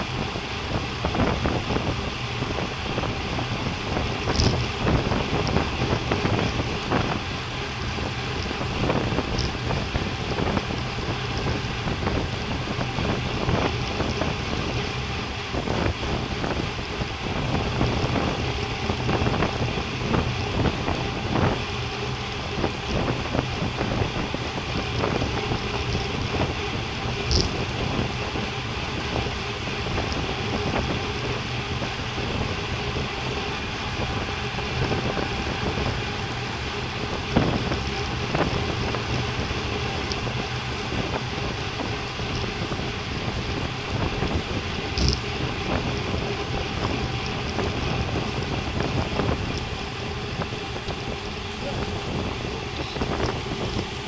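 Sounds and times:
bike tyres on tarmac: 0.0 - 54.0
wind rushing over microphone: 0.0 - 54.0.

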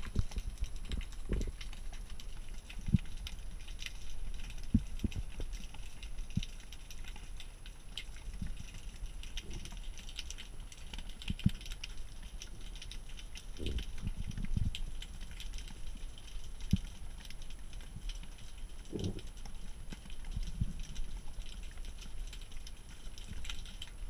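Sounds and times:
low underwater rumble: 0.0 - 6.0, 17.8 - 22.2
underwater crackle of clicks: 0.0 - 24.0.

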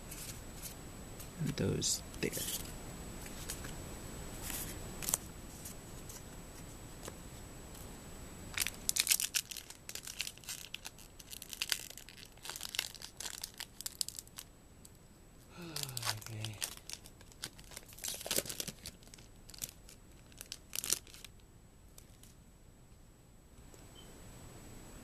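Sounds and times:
foil wrapper tearing and crinkling: 8.5 - 14.5, 15.7 - 21.4.

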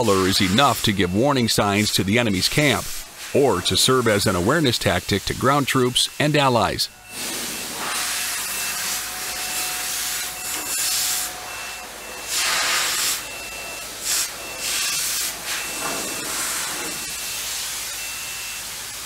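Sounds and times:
paint spray gun hissing: 2.8 - 11.4, 12.3 - 13.2.

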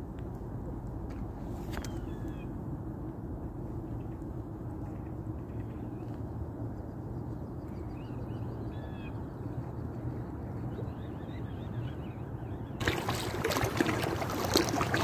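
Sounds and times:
low outdoor rumble: 12.4 - 15.0.

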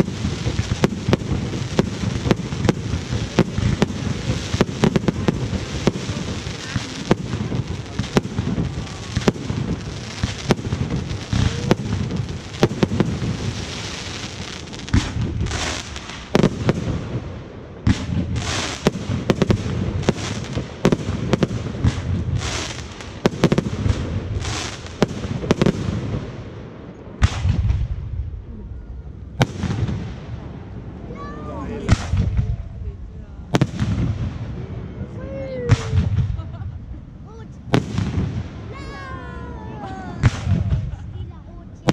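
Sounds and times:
fireworks hissing bursts: 0.0 - 26.3
fireworks bangs and crackling: 0.0 - 41.9.

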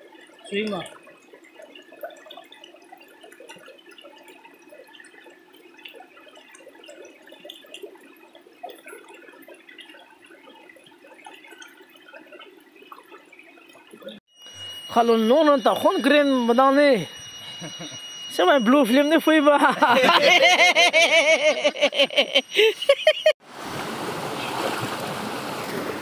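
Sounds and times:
stream gurgling over rocks: 0.0 - 14.2, 23.4 - 26.0.

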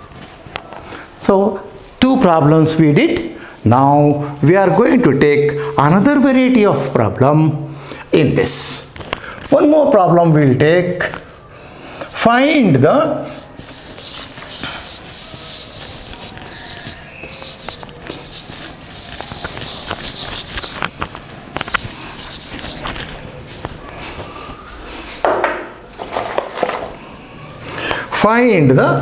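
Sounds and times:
duster rubbing chalk off blackboard: 13.3 - 21.0, 21.6 - 23.6.

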